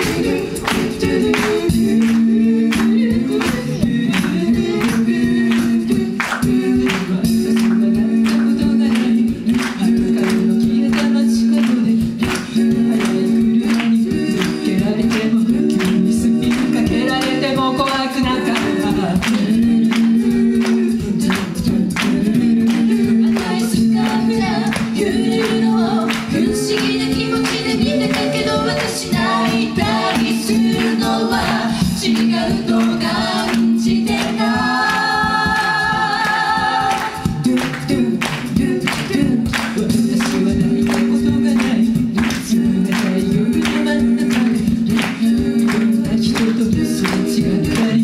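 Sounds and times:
a cappella group singing: 0.0 - 48.0
vocal percussion beat: 0.0 - 48.0.

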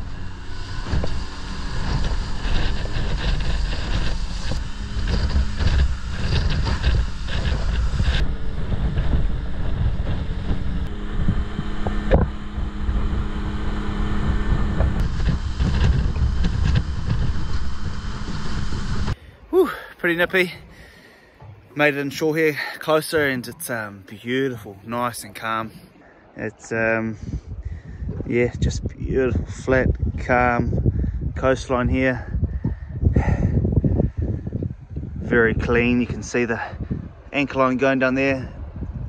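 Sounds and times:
outboard motor running: 0.0 - 23.5
wind buffeting microphone: 0.0 - 39.0.

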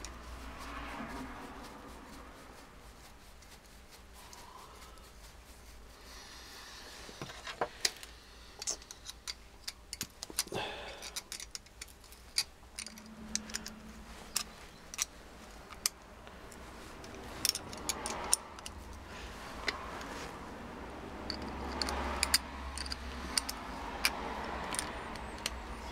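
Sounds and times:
small metallic clicks and taps: 7.2 - 19.0, 21.2 - 25.9.

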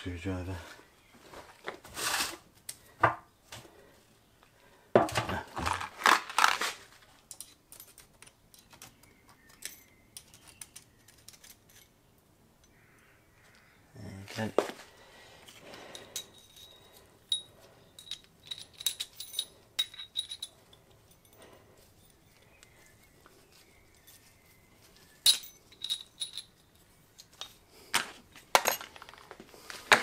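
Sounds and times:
small steel parts clinking: 7.2 - 12.0, 15.5 - 23.1, 24.9 - 27.7, 28.3 - 30.0.

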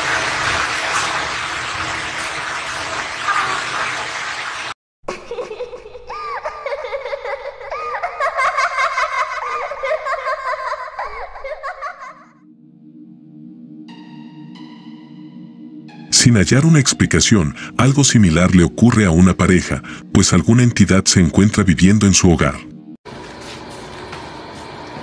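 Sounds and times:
high-pitched giggling laughter: 5.1 - 12.4
low steady drone: 12.4 - 16.2.

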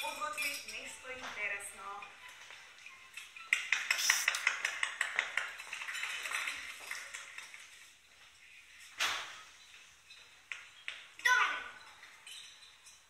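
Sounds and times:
audience clapping: 3.6 - 5.6.

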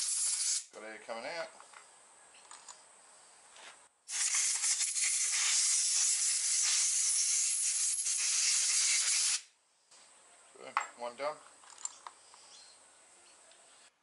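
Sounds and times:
air blow gun hissing: 0.0 - 0.7, 4.1 - 9.5.

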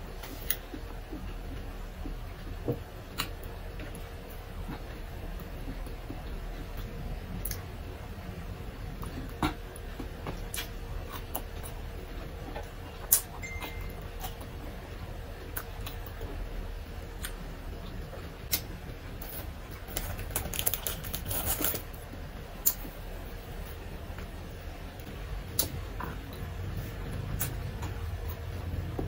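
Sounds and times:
person chewing food: 0.3 - 7.6, 8.8 - 14.8.

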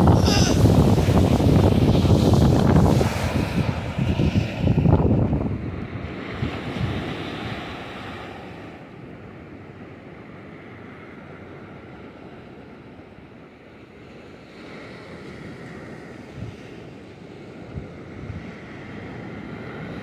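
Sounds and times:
wind buffeting microphone: 0.0 - 9.1, 15.3 - 20.0
waves breaking on beach: 0.0 - 20.0.

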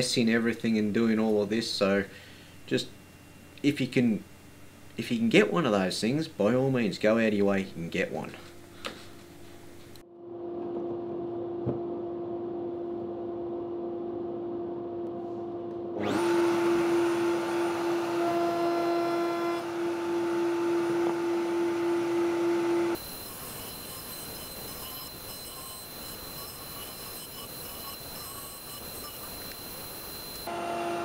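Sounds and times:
router whining cutting wood: 16.0 - 31.0.

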